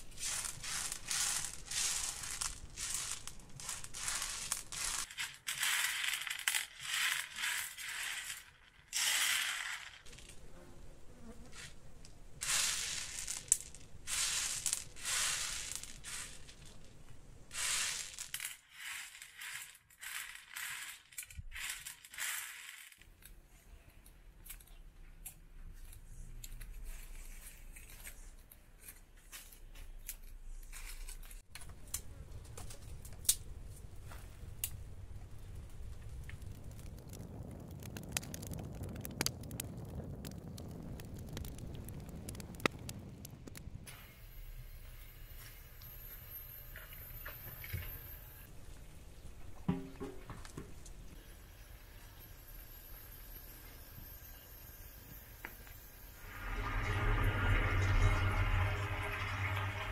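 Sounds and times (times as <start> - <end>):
chickpeas rattling on metal tray: 0.0 - 10.3, 12.4 - 16.8, 17.5 - 23.0.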